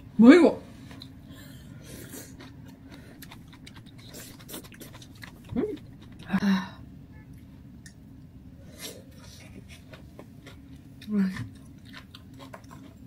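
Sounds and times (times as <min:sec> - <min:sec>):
chewing: 0:00.9 - 0:06.4, 0:08.8 - 0:13.0.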